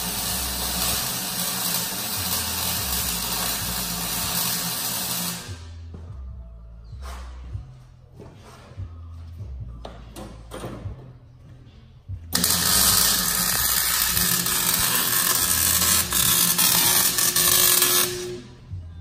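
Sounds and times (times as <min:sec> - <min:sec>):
welding arc crackling: 0:00.0 - 0:05.7, 0:12.4 - 0:18.5.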